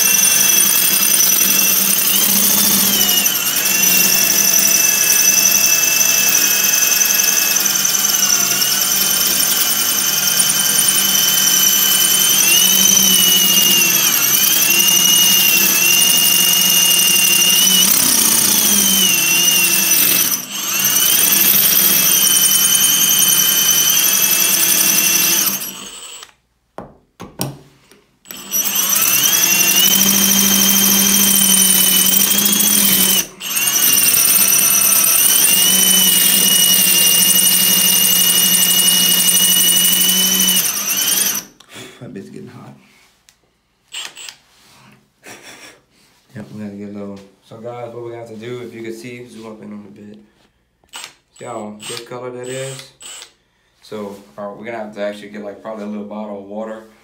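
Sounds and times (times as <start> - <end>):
drill whining into tile: 0.0 - 26.4, 28.2 - 41.7, 43.9 - 45.7, 50.8 - 53.4.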